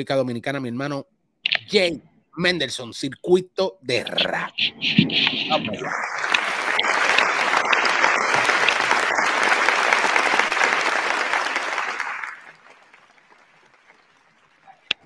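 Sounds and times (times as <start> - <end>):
crowd applause: 5.1 - 15.0.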